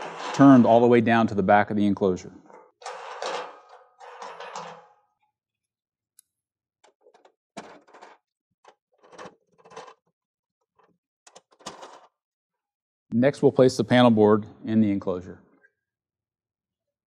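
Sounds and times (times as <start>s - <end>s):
metal nuts scraping and clicking: 2.4s - 4.8s, 6.8s - 12.1s.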